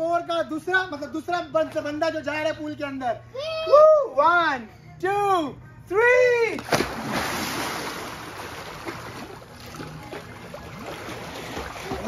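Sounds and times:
splash into pool: 6.6 - 12.0
water churning and lapping: 6.6 - 12.0.

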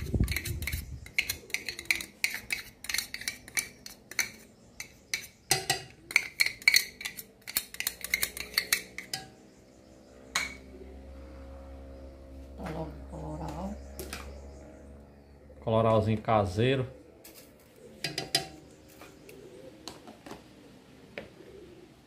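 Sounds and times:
metal spoon clinking on jar and pot: 0.0 - 9.4, 18.0 - 18.6.

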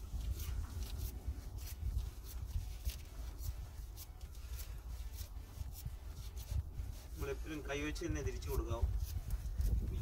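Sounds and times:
glove rubbing against filter can: 0.0 - 10.0.

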